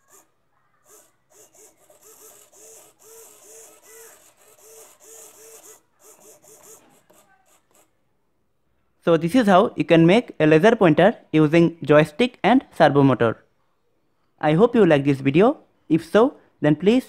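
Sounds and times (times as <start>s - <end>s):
servo motors whirring: 0.0s - 7.9s.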